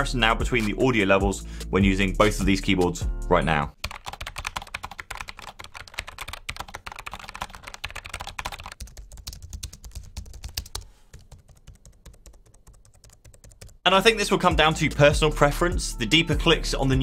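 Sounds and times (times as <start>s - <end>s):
low-profile keyboard typing: 3.8s - 13.8s
mechanical keyboard typing: 3.8s - 13.8s.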